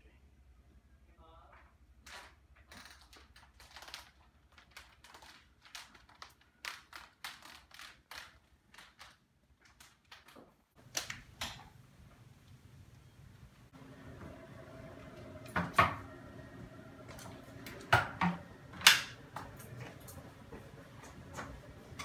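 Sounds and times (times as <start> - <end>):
footsteps: 14.1 - 22.0
chair casters clicking on wooden floor: 17.1 - 22.0.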